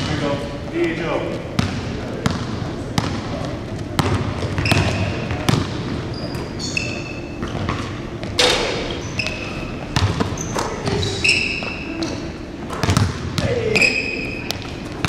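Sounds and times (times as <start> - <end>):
sneakers squeaking on court: 1.4 - 15.0
basketballs bouncing on hardwood: 1.5 - 5.9, 7.4 - 13.8.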